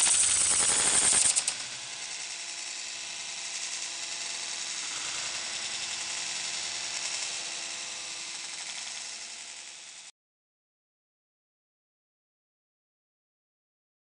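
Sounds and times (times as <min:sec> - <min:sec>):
plastic gears whirring: 0:00.0 - 0:10.1.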